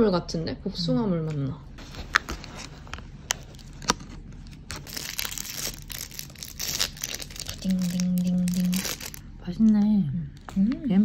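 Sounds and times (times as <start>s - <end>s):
plastic packaging crinkling and tearing: 1.8s - 9.2s.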